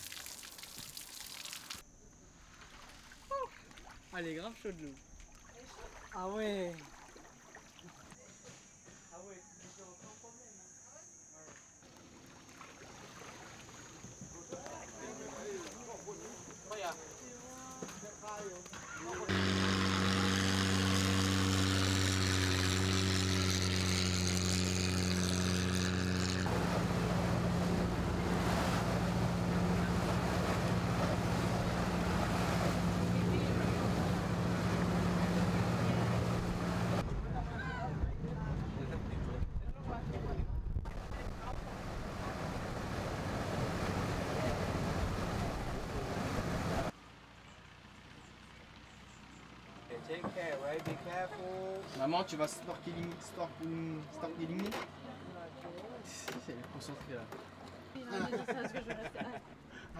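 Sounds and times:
boat engine running: 18.8 - 37.5, 38.2 - 46.9
rushing wind and water: 26.5 - 37.0, 40.8 - 46.9.

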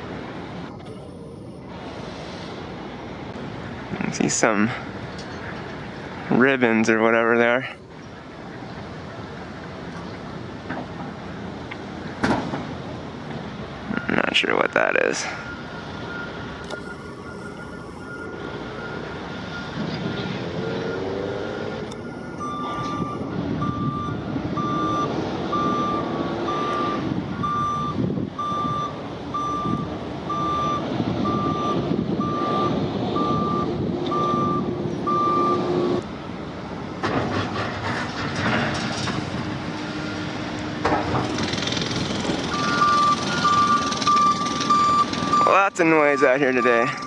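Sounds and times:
steady machinery noise: 0.0 - 27.3, 30.8 - 47.0
backup alarm beeping: 14.0 - 20.3, 20.9 - 36.0, 42.5 - 47.0.

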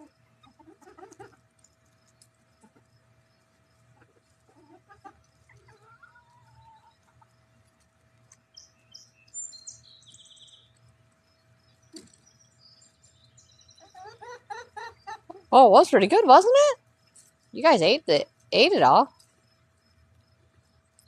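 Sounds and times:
hens clucking softly: 0.0 - 8.5, 13.7 - 15.6.

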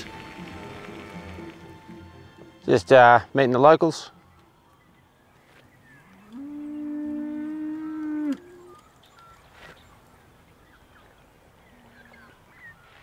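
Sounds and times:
cow mooing: 6.0 - 8.8.

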